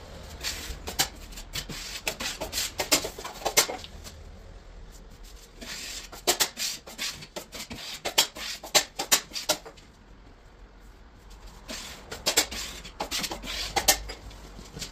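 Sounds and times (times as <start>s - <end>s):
hand tools scraping plasterboard: 0.3s - 3.9s, 5.3s - 9.8s, 11.5s - 14.9s.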